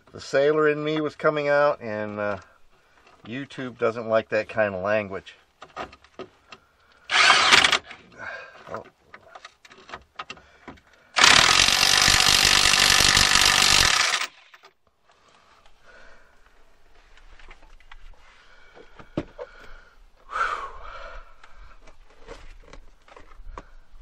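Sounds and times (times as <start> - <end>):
impact wrench tightening bolt: 7.1 - 8.0, 11.2 - 14.6.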